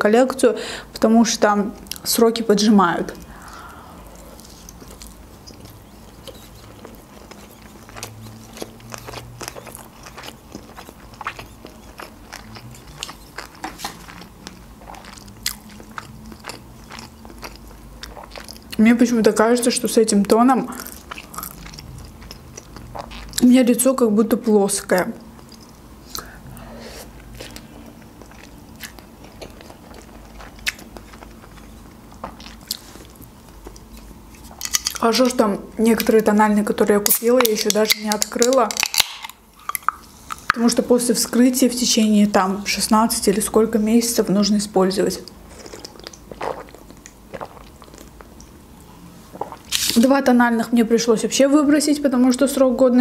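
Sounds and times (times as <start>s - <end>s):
chewing food: 3.2s - 19.2s, 20.2s - 23.5s, 24.9s - 26.3s, 27.2s - 36.4s, 45.2s - 49.9s
wet mouth clicks and smacks: 37.1s - 40.6s.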